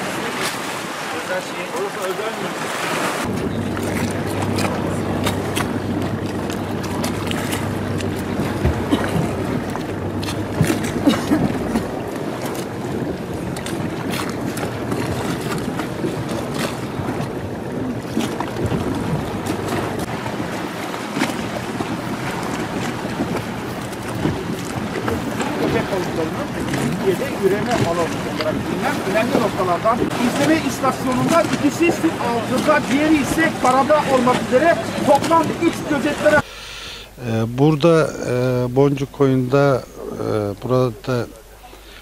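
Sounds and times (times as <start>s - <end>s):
outboard engine humming: 0.0s - 42.0s
wind noise on microphone: 3.1s - 26.0s.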